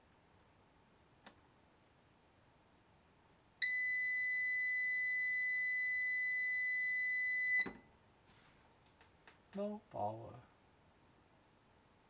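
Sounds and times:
high-pitched alarm beep: 3.6 - 7.8.

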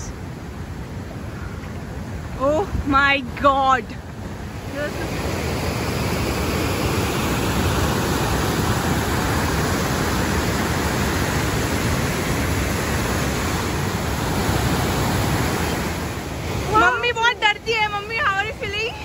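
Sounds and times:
water rushing over rocks: 0.0 - 19.0.

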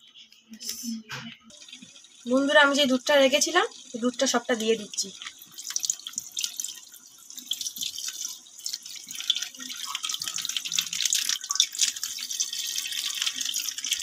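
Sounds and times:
curry boiling in a pot: 1.4 - 14.0
milk pouring: 4.8 - 14.0.

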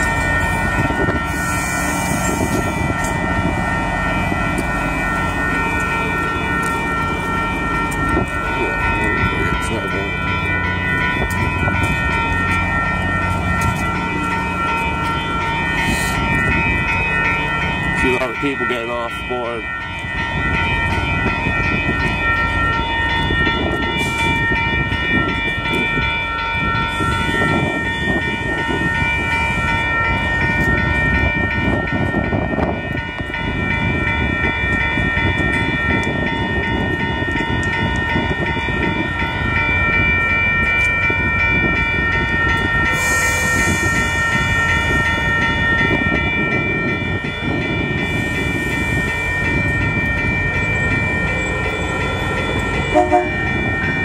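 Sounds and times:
diesel railcars rumbling: 0.0 - 54.0
level-crossing bell ringing: 0.0 - 54.0.

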